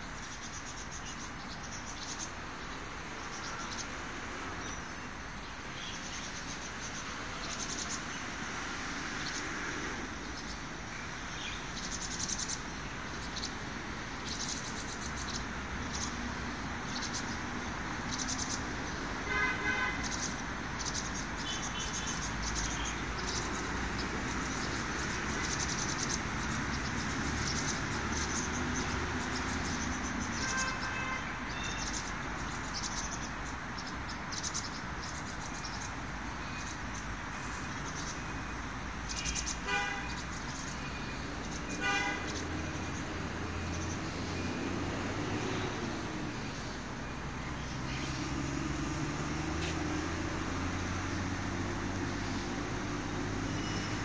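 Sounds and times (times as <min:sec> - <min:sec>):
distant traffic hum: 0:00.0 - 0:54.0
insects chirping: 0:00.0 - 0:54.0
bird call: 0:18.1 - 0:38.4.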